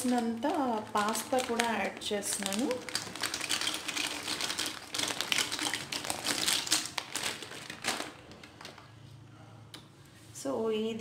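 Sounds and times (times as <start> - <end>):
dry pasta clattering into metal pan: 1.0 - 8.1.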